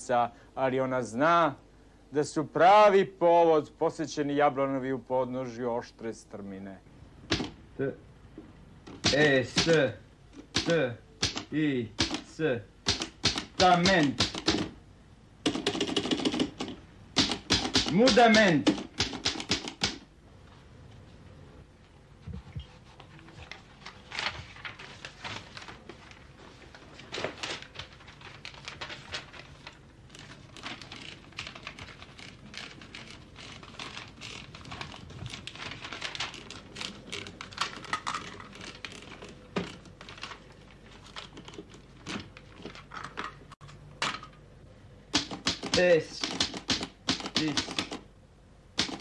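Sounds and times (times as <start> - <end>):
typewriter keys clacking: 9.0 - 9.8, 10.5 - 12.3, 12.9 - 14.7, 15.5 - 20.0, 30.2 - 40.4, 45.2 - 48.0, 48.8 - 49.0.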